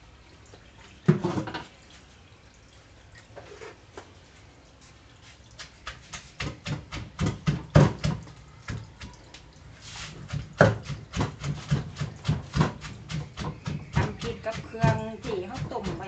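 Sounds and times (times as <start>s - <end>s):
wooden pestle pounding in mortar: 5.9s - 9.2s, 10.2s - 16.0s.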